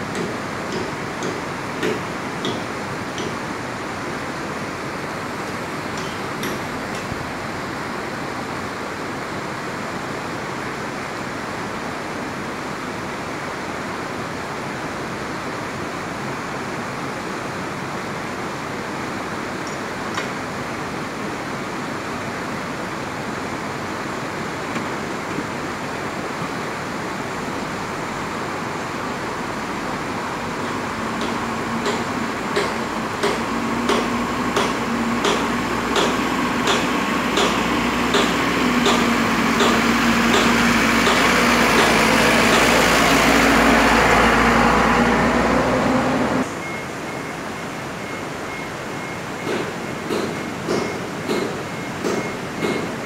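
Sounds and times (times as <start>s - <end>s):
excavator diesel engine: 18.6s - 53.0s
dump truck engine: 23.3s - 53.0s.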